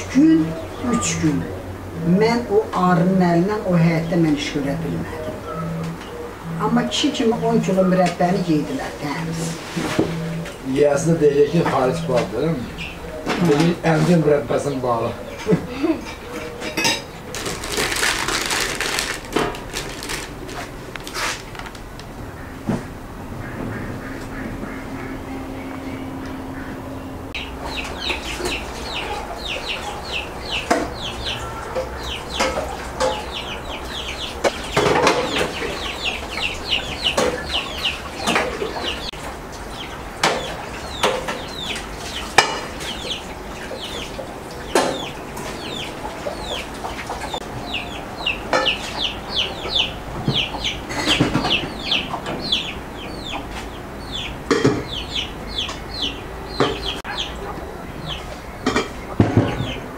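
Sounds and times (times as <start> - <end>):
birds chirping: 0.0 - 59.9
pots and pans clanking: 15.4 - 17.4, 42.3 - 42.8, 58.6 - 59.7.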